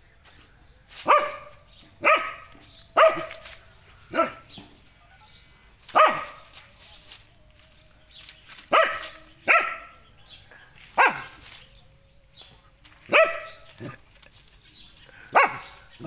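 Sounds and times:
dog barking: 1.0s - 6.5s, 8.7s - 11.4s, 13.1s - 14.0s, 15.2s - 16.0s.

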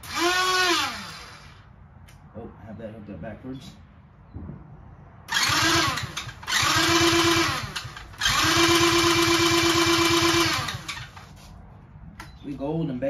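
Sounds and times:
electric starter cranking engine: 0.0s - 1.6s, 5.3s - 11.3s.

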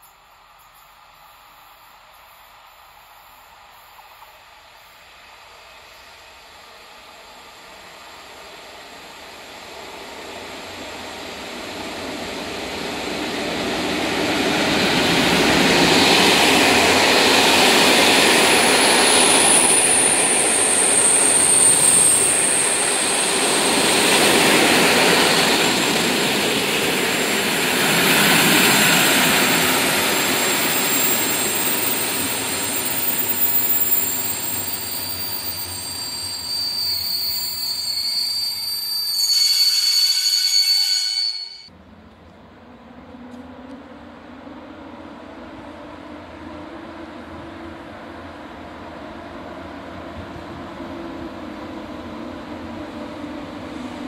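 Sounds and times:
high-pitched wheel squeal: 19.0s - 26.0s, 29.3s - 41.7s.

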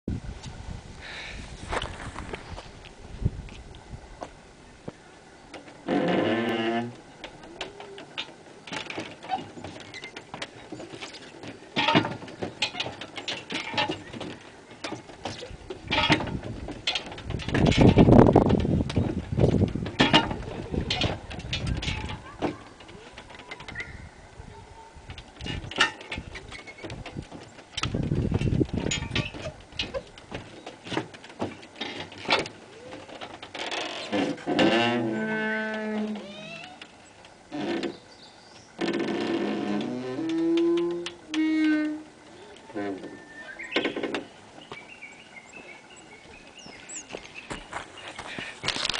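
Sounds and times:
knocks and thuds of feet on wood: 4.2s - 24.0s, 25.0s - 44.9s, 46.3s - 48.9s
footfalls on wooden slats: 5.5s - 23.9s, 25.0s - 36.9s
wooden wheel clattering: 5.5s - 24.0s, 25.0s - 44.9s.

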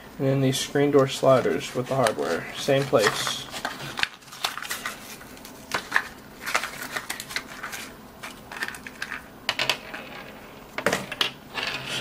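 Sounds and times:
packaging crinkles: 1.5s - 9.2s.

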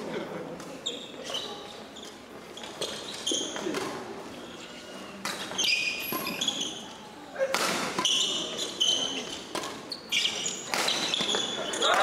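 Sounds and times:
shoes squeaking on court: 0.6s - 7.0s, 7.8s - 12.0s
racket hitting shuttlecock: 7.4s - 12.0s.

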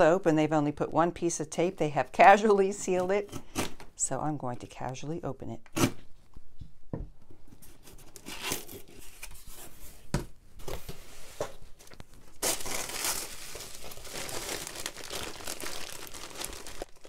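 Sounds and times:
tissue paper and plastic rustling: 10.6s - 17.0s.

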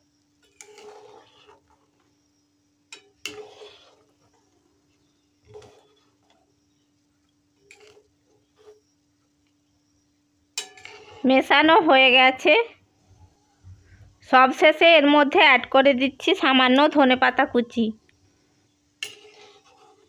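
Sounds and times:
faint steady hum: 0.0s - 20.0s
metal spatula scraping a wok: 0.4s - 2.0s, 3.0s - 4.7s, 5.4s - 6.2s, 7.6s - 8.9s, 10.6s - 11.5s, 19.0s - 20.0s.

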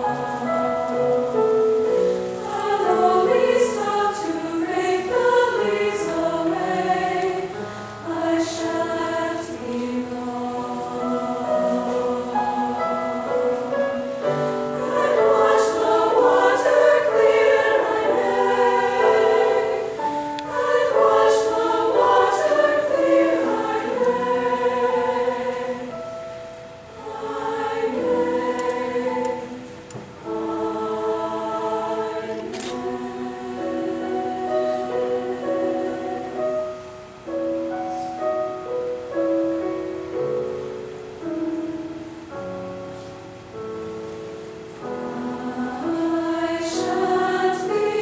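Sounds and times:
mixed choir singing in harmony: 0.0s - 48.0s.

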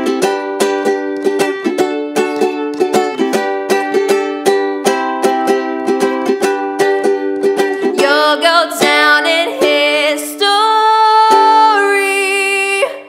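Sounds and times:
ukulele strumming chords: 0.0s - 13.0s
girl singing: 4.8s - 13.0s.

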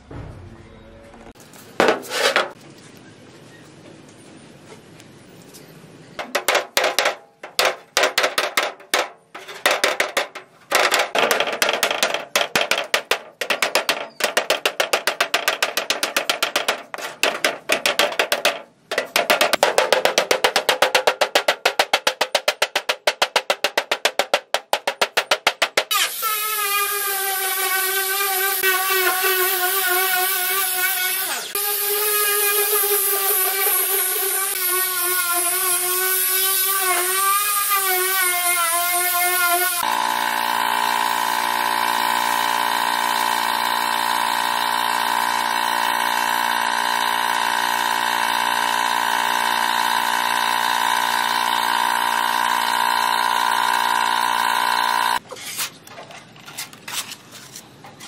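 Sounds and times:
angle grinder grinding metal: 25.4s - 55.2s.

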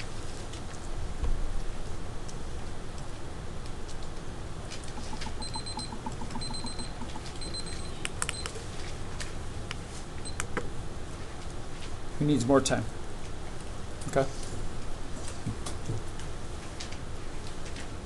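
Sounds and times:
steady low hum: 0.0s - 17.4s
short high electronic beeps: 5.0s - 8.4s
small clicks: 5.0s - 8.6s.

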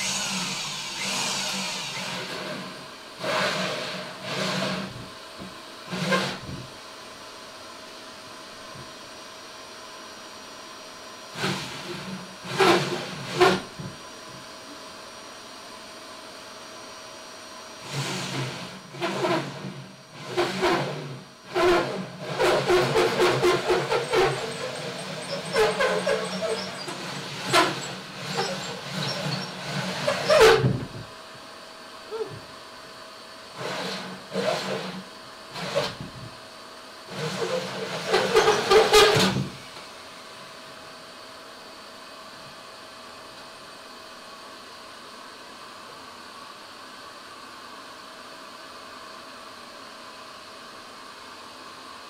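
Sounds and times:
power drill with hole saw cutting: 0.0s - 5.1s, 5.9s - 6.6s, 11.3s - 13.9s, 17.8s - 31.0s, 33.5s - 36.1s, 37.1s - 39.6s.

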